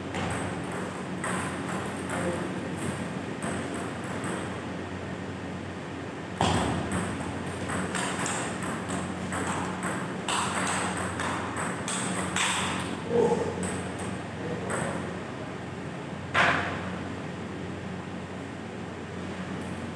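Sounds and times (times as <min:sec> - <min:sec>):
table tennis ball clicking: 0:06.9 - 0:12.8.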